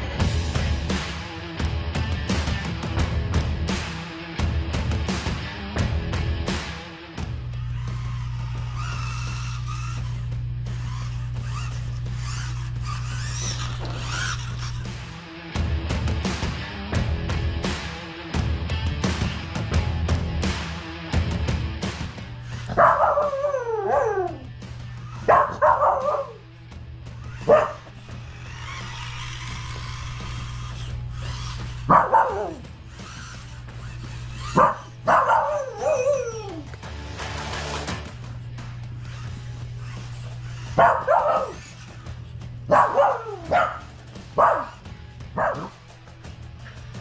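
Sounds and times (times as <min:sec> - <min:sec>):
background music: 0:00.0 - 0:47.0
puppy yowling bark: 0:22.6 - 0:24.5, 0:25.1 - 0:26.4, 0:27.3 - 0:27.9, 0:31.2 - 0:33.2, 0:34.3 - 0:36.7, 0:40.6 - 0:41.8, 0:42.7 - 0:44.8, 0:45.4 - 0:45.8
sharp dog bark: 0:25.3 - 0:26.4, 0:42.7 - 0:43.8, 0:44.4 - 0:44.7, 0:45.4 - 0:45.7.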